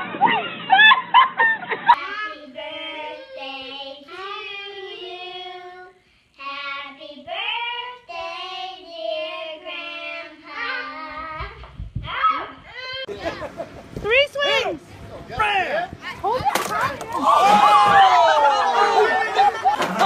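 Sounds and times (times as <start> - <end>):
children singing: 2.0 - 6.0.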